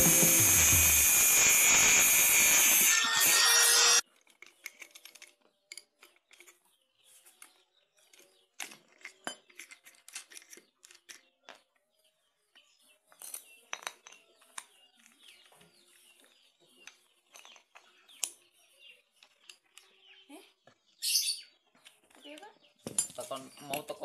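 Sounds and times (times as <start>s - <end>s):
metal parts clicking and clinking: 4.2s - 6.6s, 8.1s - 11.2s.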